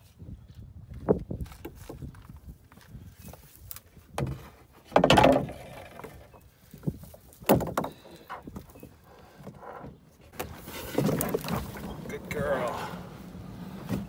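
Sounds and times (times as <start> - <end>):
canoe hull knocks and scrapes: 4.1 - 12.4.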